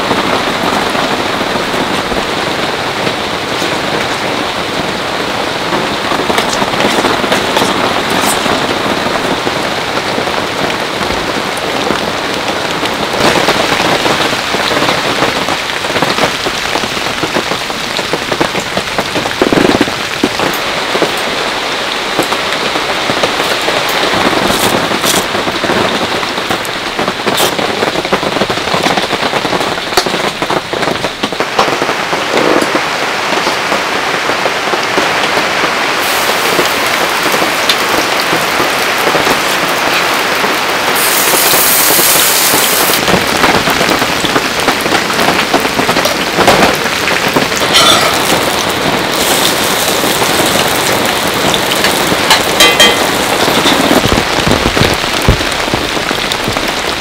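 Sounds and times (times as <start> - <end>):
heavy rain on tent: 0.0 - 57.0
batter sizzling in skillet: 41.0 - 43.0, 49.1 - 51.1.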